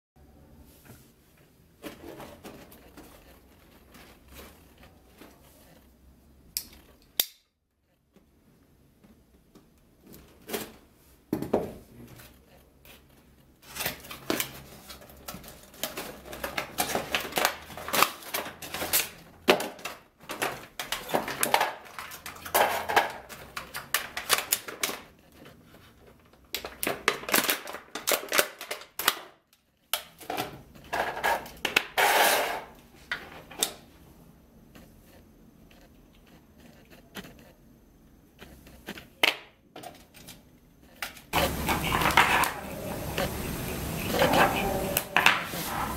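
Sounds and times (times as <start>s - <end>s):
plastic and cardboard crinkling: 1.4s - 6.0s, 12.1s - 32.0s.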